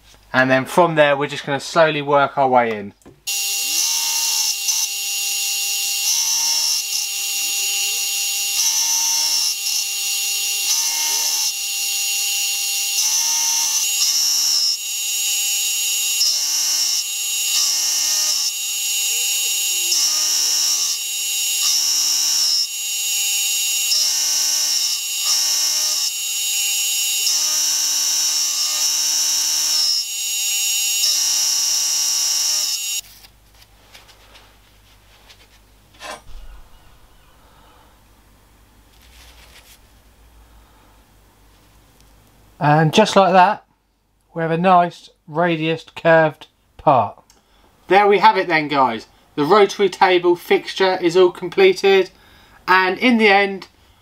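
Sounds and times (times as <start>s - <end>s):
end mill cutting metal: 3.3s - 33.0s
milling machine motor whine: 3.3s - 33.0s.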